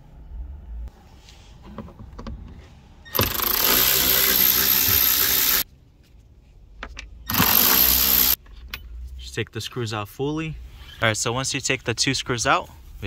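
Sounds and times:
cordless power driver spinning: 3.2 - 5.6, 7.3 - 8.4.

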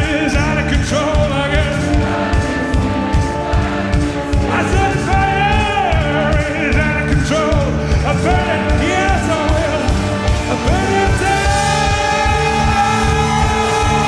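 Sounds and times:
rock band playing live: 0.0 - 14.0
man singing long sliding notes: 4.4 - 14.0.

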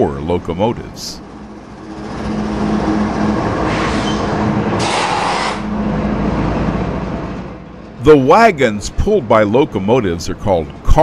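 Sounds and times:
locomotive engine hum: 0.0 - 11.0
train rumbling on rails: 0.0 - 11.0
hiss bursts: 4.8 - 5.6.

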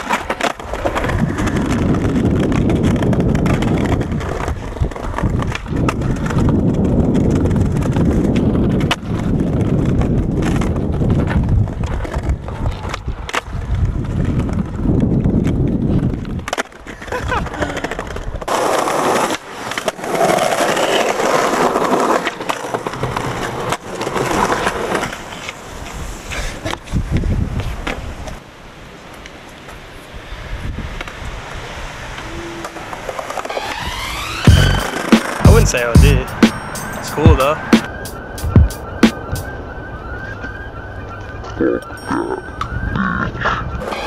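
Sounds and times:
skateboard popping and landing: 0.0 - 14.7, 15.4 - 25.6
skateboard trucks grinding on stone: 0.0 - 28.4, 32.0 - 35.9, 43.8 - 44.0
skateboard wheels rolling on stone: 0.0 - 36.7, 43.8 - 44.0.

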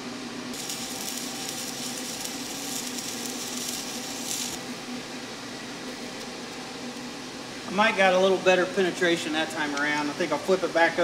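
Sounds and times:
welding arc crackling: 0.5 - 4.8.

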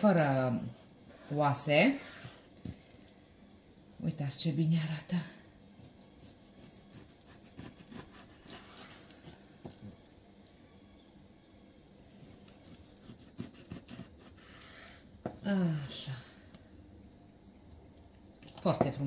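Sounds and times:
knife scraping fish fillet: 5.8 - 9.4, 12.1 - 15.0.

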